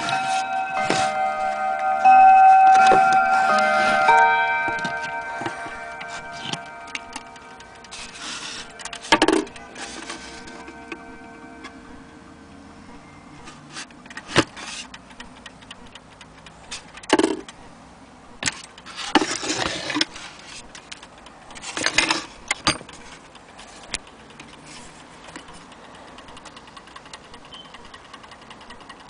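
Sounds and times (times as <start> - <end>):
glass bezel opening: 0.0 - 12.0
clock ticking: 0.0 - 18.9, 20.6 - 21.7, 22.4 - 29.0.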